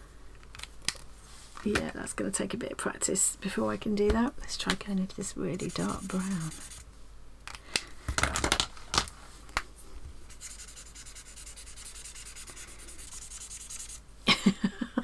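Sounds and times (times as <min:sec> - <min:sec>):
marker scratching on paper: 0:05.5 - 0:06.8, 0:10.3 - 0:14.0.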